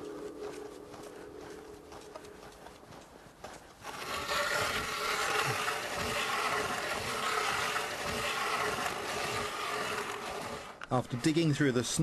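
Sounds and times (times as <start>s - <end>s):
ice auger grinding into ice: 3.8s - 12.0s.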